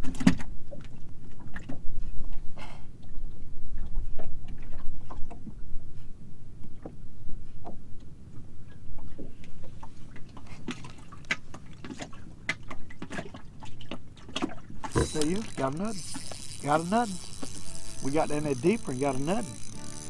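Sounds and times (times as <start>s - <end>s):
fishing tackle clicking and knocking: 14.8s - 20.0s.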